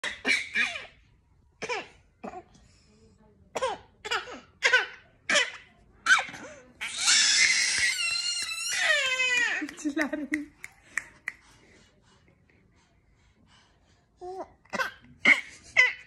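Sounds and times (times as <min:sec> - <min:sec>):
baby wailing: 0:06.8 - 0:09.8.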